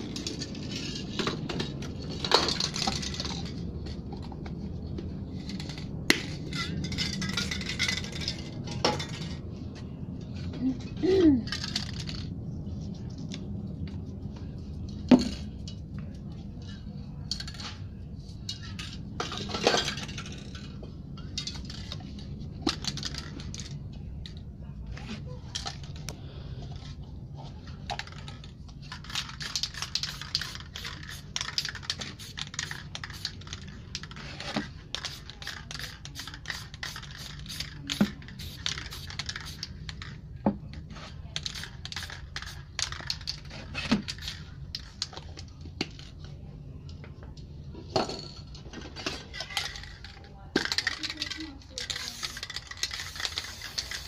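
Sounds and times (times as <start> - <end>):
metallic clicks of spray cans: 28.1 - 34.2, 34.9 - 40.1, 41.4 - 45.2, 49.6 - 54.0
spray paint can hissing: 29.1 - 33.6, 34.9 - 39.7, 41.4 - 42.7, 51.8 - 54.0.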